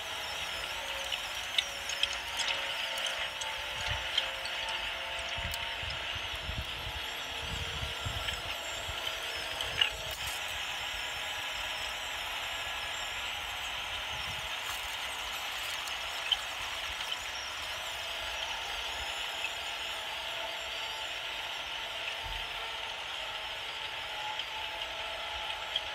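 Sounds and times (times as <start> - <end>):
toy tractor motor whining: 0.0 - 25.9
roller over gravel: 13.6 - 17.8.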